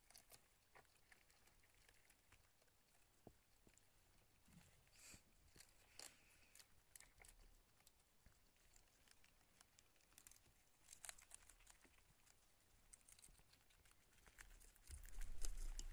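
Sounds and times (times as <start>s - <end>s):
hamsters rustling in bedding: 8.9s - 15.9s.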